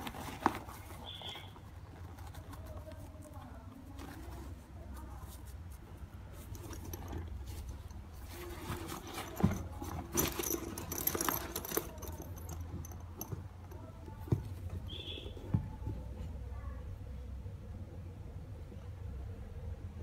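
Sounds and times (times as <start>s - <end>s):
bag material rustling: 0.0s - 14.5s.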